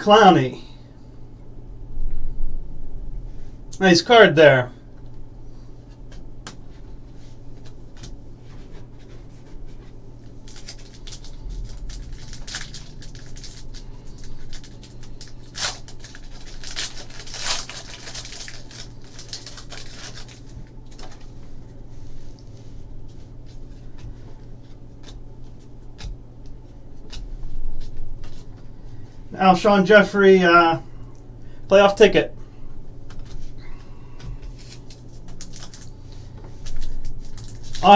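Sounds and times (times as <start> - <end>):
foil wrapper crinkling and tearing: 10.2 - 21.5, 34.5 - 37.9.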